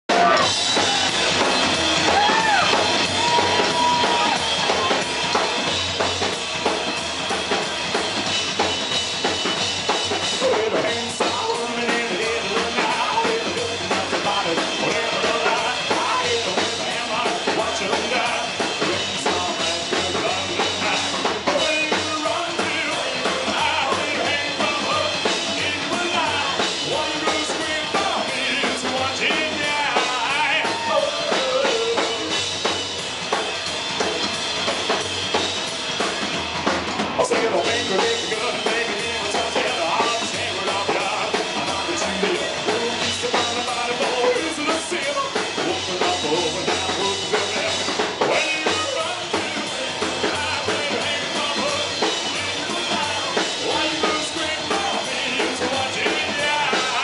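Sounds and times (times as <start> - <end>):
drum kit: 0.0 - 57.0
upright bass: 0.0 - 57.0
live rock band playing: 0.1 - 57.0
person singing: 10.4 - 32.4, 37.2 - 57.0.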